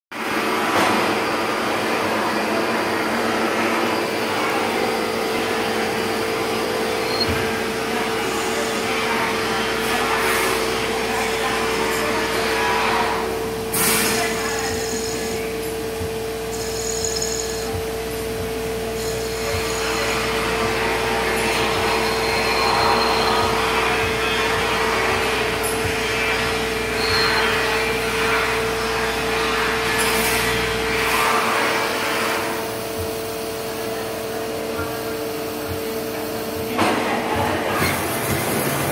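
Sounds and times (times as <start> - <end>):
lathe spindle whine: 16.4 - 28.9.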